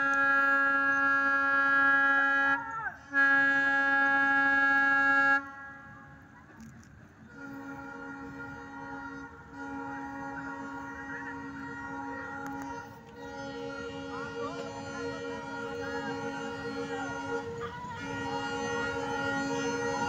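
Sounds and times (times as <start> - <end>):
locomotive horn blasts: 0.0 - 20.0.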